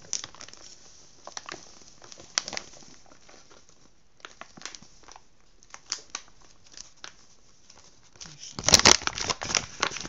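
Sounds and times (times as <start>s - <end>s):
flour bag crinkling: 0.0s - 10.0s.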